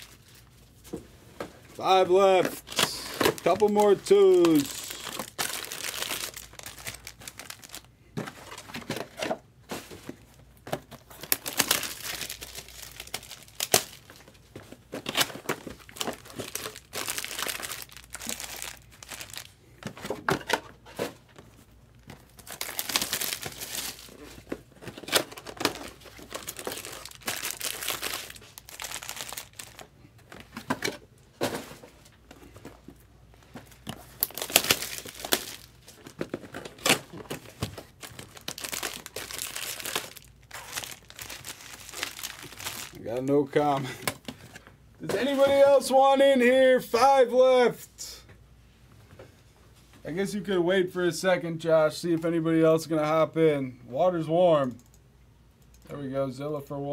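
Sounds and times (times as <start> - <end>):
plastic wrapping crinkling and tearing: 0.0 - 0.5, 2.4 - 9.2, 10.6 - 19.6, 22.0 - 30.6, 33.7 - 44.6.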